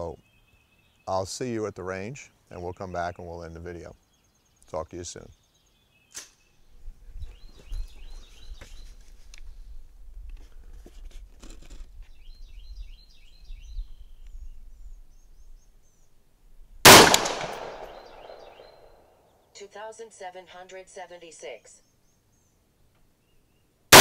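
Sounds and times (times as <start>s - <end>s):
rifle shot with ringing echo: 16.8s - 19.0s.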